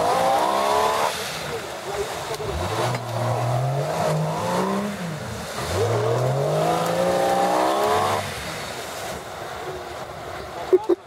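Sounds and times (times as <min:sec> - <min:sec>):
engine revving hard: 0:00.0 - 0:01.4, 0:02.4 - 0:08.4.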